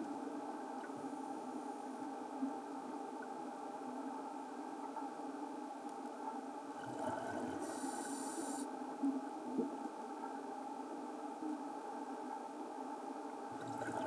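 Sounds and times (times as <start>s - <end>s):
regulator hiss: 7.4s - 8.7s.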